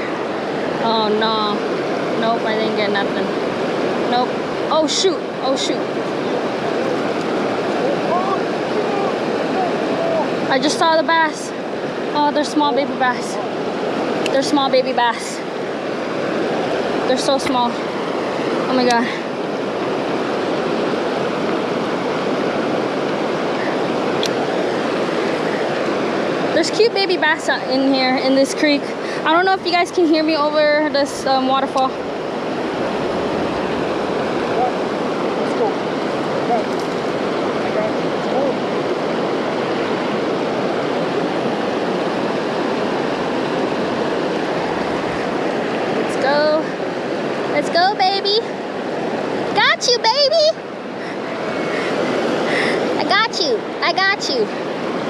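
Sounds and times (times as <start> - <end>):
creek water rushing over rocks: 0.0 - 55.0.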